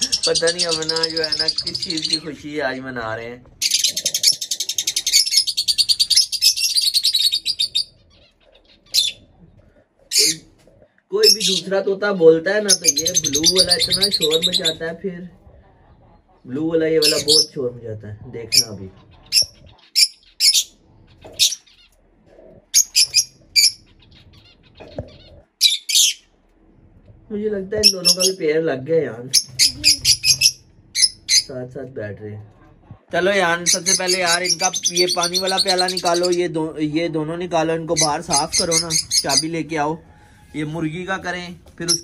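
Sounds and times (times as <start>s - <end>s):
parrots screeching: 0.0s - 2.4s, 3.6s - 9.5s, 10.1s - 10.6s, 11.2s - 15.0s, 17.0s - 17.5s, 18.5s - 26.3s, 27.8s - 28.4s, 29.3s - 31.5s, 33.6s - 36.5s, 37.8s - 40.8s, 41.8s - 42.0s.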